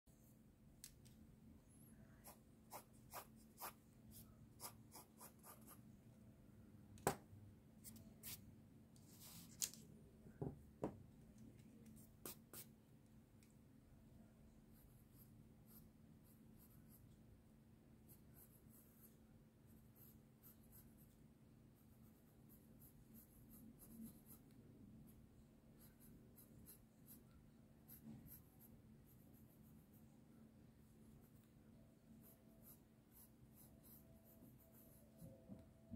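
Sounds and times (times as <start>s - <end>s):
pencil scratching on paper: 2.2s - 5.8s, 18.1s - 21.2s, 21.8s - 24.6s, 25.8s - 30.1s, 32.2s - 35.6s.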